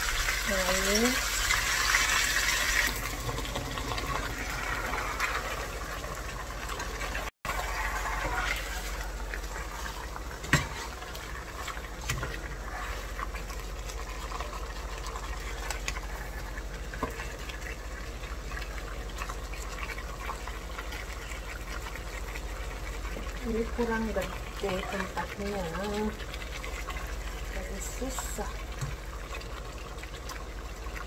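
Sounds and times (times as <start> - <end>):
liquid bubbling in a pot: 0.0 - 31.0
spatula scraping a pot: 7.5 - 14.6.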